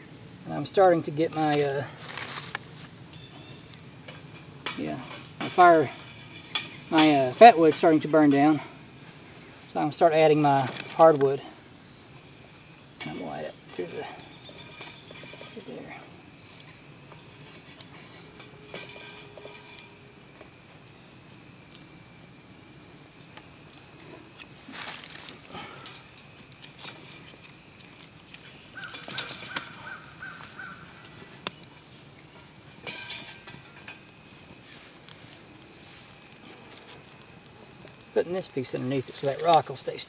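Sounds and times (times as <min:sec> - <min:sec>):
insects chirring: 0:00.0 - 0:40.0.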